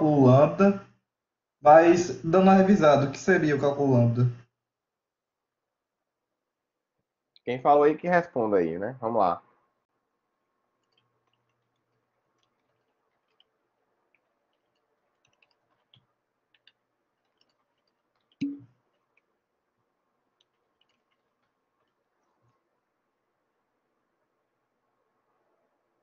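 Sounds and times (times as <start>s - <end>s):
faint steady hum: 0.0s - 7.7s, 9.1s - 26.0s
faint small clicks: 10.8s - 19.3s, 20.3s - 22.7s.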